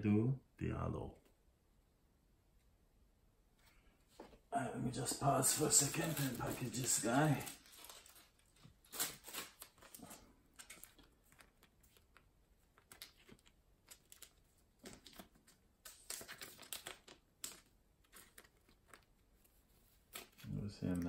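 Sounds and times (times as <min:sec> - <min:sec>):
plastic card sleeve crinkling: 0:05.0 - 0:21.0.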